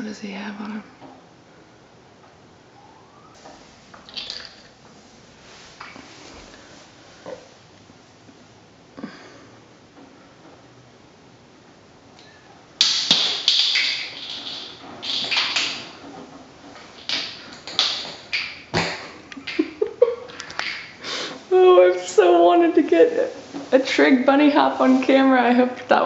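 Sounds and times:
cat scraping and clattering: 13.0 - 18.5.

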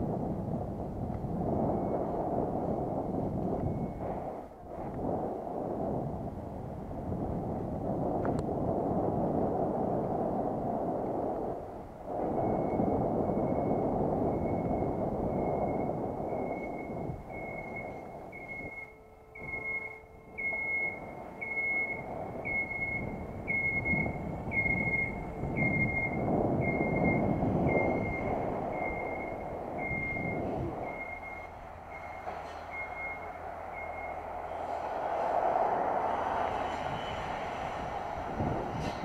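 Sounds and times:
wind and road noise: 0.0 - 39.0
electronic beeper beeping: 15.4 - 34.2.

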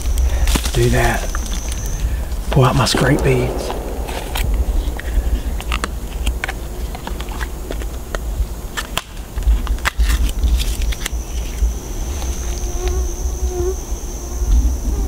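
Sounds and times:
constant low rumble: 2.8 - 8.1.

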